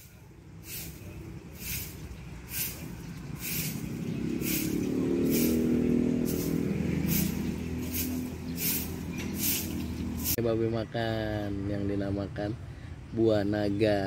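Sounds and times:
short swishing sounds: 0.6 - 5.7, 6.3 - 10.4
vehicle engine passing: 0.6 - 10.4.

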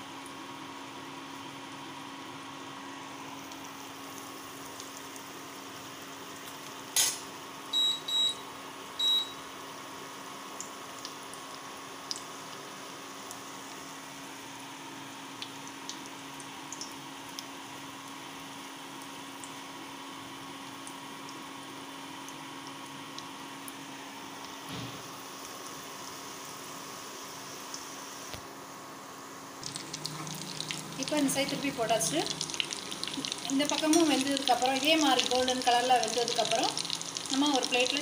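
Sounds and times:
short high-pitched beeps: 7.8 - 8.4, 9.0 - 9.4
food sizzling in hot oil: 29.6 - 38.0.

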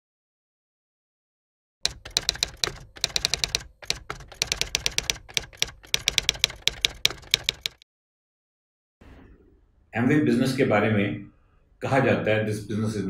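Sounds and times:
keyboard keys clacking: 1.8 - 7.8.

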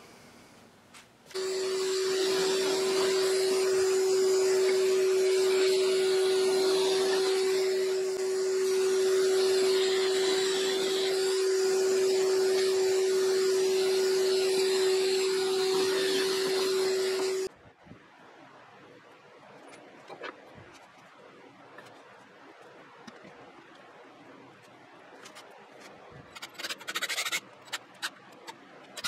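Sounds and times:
shop vacuum humming: 1.3 - 17.5.

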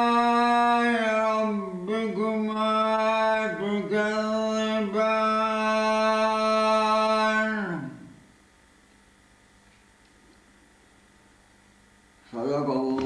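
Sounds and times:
man chanting unaccompanied: 0.0 - 8.2, 12.2 - 13.0.

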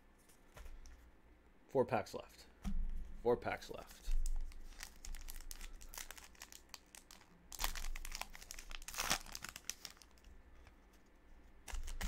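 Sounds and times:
wrapper crinkling: 4.3 - 10.7, 11.6 - 12.0.

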